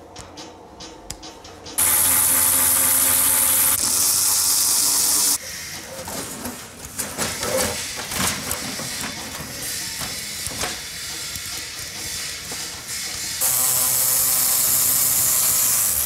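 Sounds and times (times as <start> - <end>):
cordless power tool running: 1.8 - 5.4, 13.4 - 16.0.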